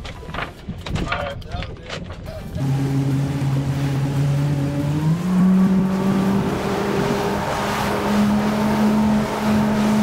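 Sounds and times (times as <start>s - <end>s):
rush of wind and water: 2.2s - 10.0s
outboard motor running: 2.5s - 10.0s.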